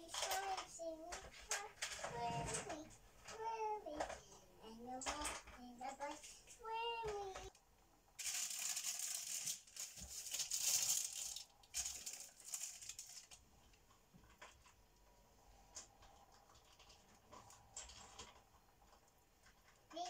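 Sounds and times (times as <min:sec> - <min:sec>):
faint handling noises: 0:00.0 - 0:07.7
baking paper rustling and tearing: 0:08.2 - 0:13.4.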